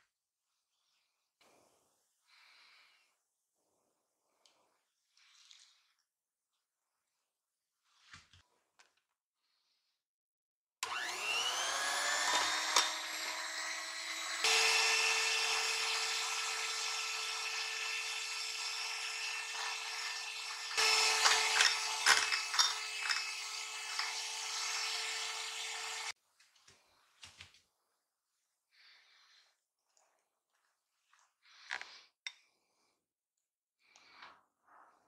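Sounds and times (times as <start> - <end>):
electric hand mixer whining: 10.8 - 26.2.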